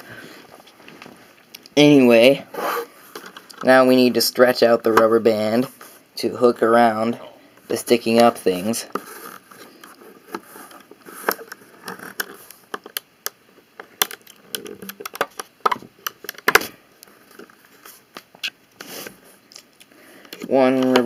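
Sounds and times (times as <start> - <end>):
rubber band stretching: 8.9 - 12.5, 14.0 - 17.6
plastic pieces clicking and scraping: 8.9 - 18.9.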